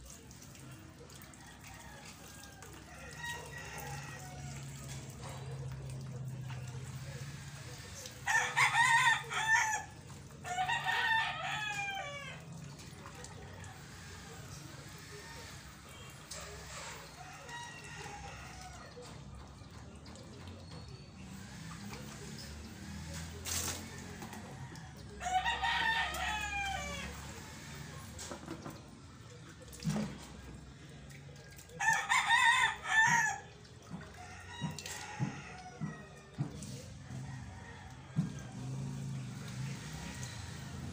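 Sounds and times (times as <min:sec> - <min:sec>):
water splashing from a dipper: 0:00.0 - 0:40.9
rooster crowing: 0:08.2 - 0:12.4, 0:23.9 - 0:27.6.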